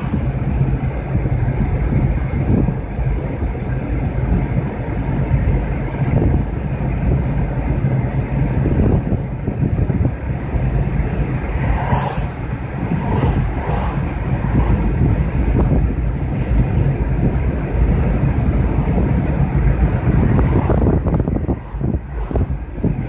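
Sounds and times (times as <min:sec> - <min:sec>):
road and engine rumble: 0:00.0 - 0:23.0
vehicles swishing past: 0:10.5 - 0:23.0.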